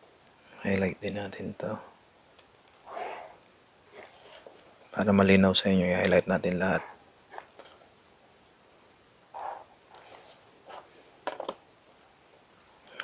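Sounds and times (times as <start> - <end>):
marker stroking across paper: 2.9 - 4.6, 9.4 - 10.9.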